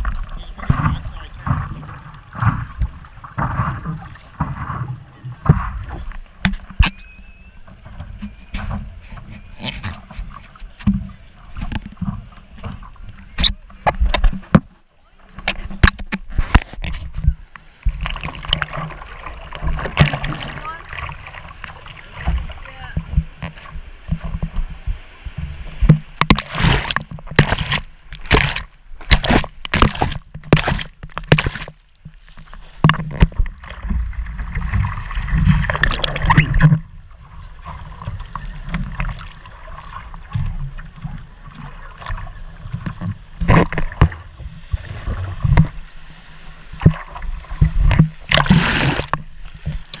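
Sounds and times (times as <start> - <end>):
water buffeting camera: 0.0 - 50.0
water rushing: 0.0 - 50.0
water splashing from hand strokes: 26.2 - 33.9.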